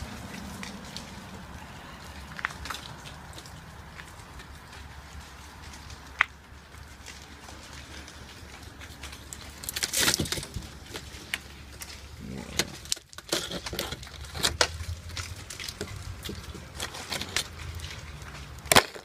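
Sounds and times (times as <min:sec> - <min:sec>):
ice crust cracking on metal: 0:00.0 - 0:19.0
loud ice crunch: 0:08.9 - 0:19.0.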